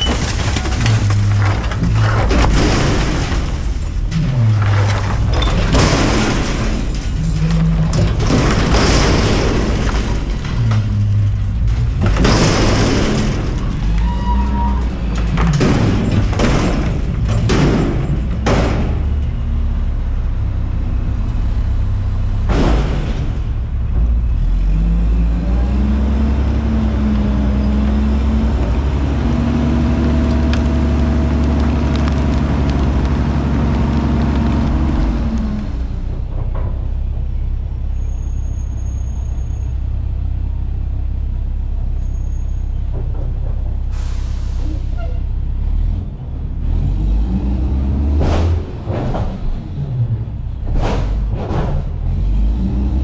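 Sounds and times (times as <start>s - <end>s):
trash and container banging: 0.0s - 19.3s, 22.4s - 24.4s, 48.0s - 52.2s
diesel engine revving and idling: 19.3s - 36.4s, 43.9s - 53.0s.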